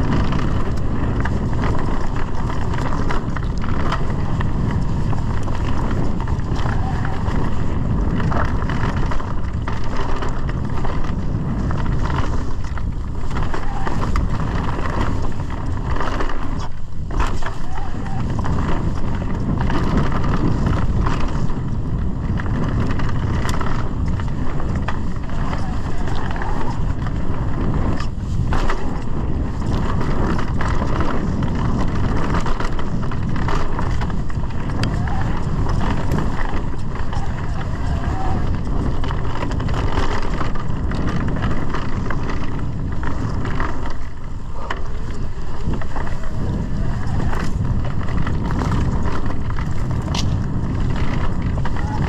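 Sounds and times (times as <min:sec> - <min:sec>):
bike knocks and rattles: 0:00.0 - 0:52.0
tyre noise over ground: 0:00.0 - 0:52.0
wind rush on microphone: 0:00.0 - 0:52.0.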